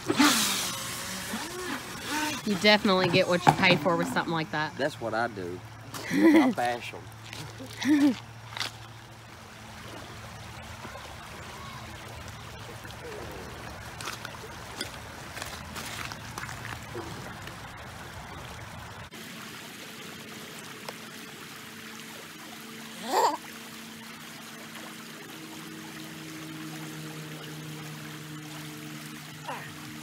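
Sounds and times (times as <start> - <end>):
water running over rocks: 0.0 - 30.0
splashing steps through water: 7.0 - 9.2, 13.0 - 18.2.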